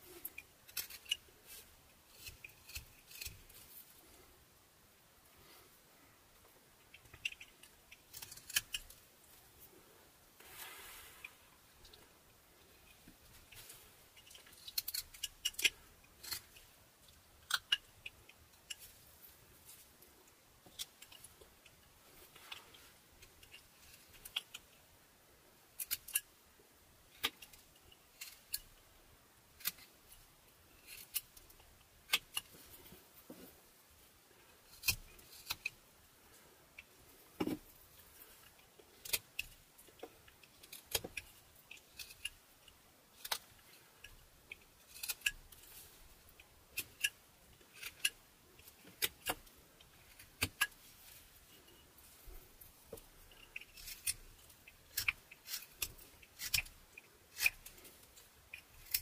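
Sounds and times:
knife cutting wood: 0:34.7 - 0:35.8, 0:43.2 - 0:59.0.

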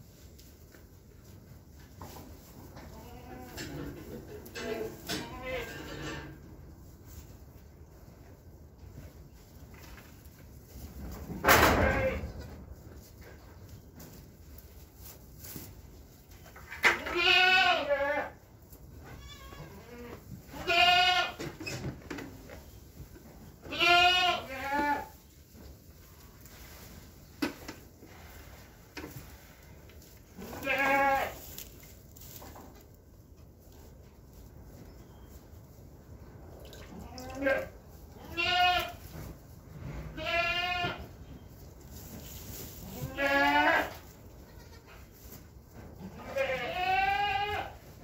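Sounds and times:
goats bleating: 0:17.0 - 0:18.4, 0:19.1 - 0:21.4, 0:23.6 - 0:25.1, 0:30.4 - 0:31.4, 0:37.0 - 0:39.0, 0:40.1 - 0:41.0, 0:42.9 - 0:45.0, 0:46.0 - 0:47.8.

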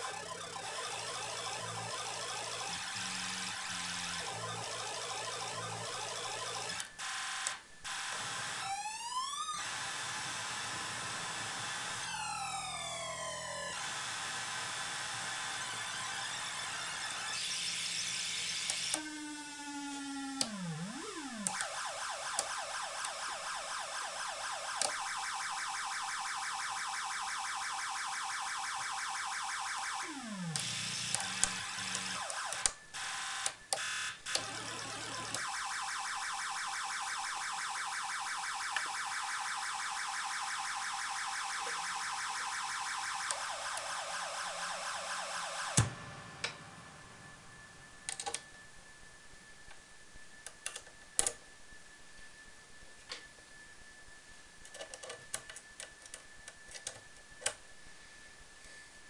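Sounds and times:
buzzy electronic synth tones: 0:00.0 - 0:48.0.

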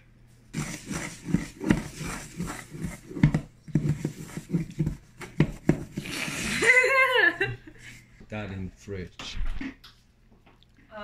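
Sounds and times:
stirring flour in metal bowl: 0:00.5 - 0:06.7.

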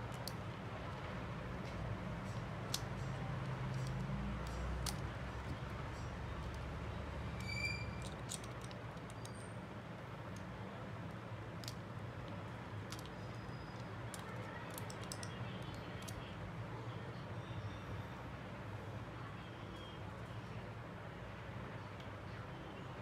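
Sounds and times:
small clicks and taps of tools: 0:00.0 - 0:06.7, 0:11.6 - 0:16.2.

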